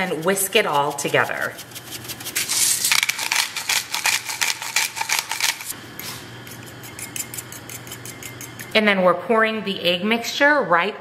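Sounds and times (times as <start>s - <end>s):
whisk beating in ceramic bowl: 0.0s - 5.7s, 6.4s - 8.8s.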